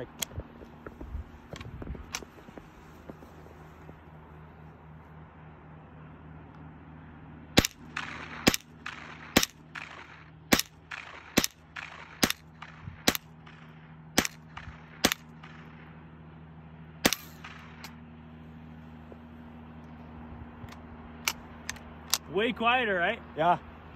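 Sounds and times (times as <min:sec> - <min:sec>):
rifle shots: 0:07.6 - 0:16.0, 0:17.0 - 0:18.0.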